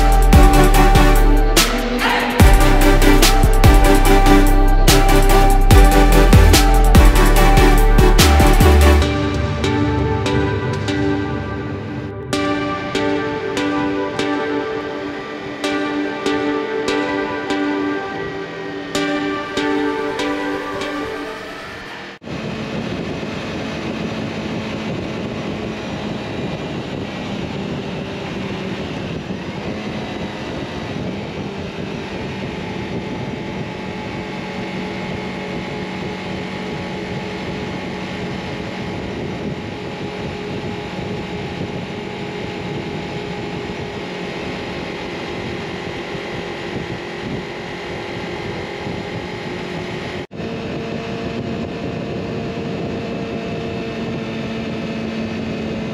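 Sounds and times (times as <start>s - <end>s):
motorcycle engine cruising: 0.0s - 55.9s
wind rushing over microphone: 22.2s - 55.9s.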